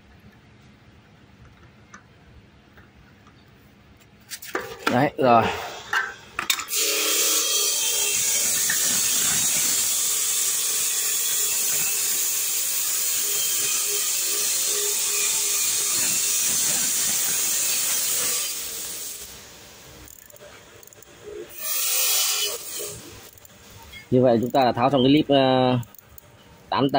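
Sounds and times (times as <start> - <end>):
loud steady hiss: 6.7 - 20.1.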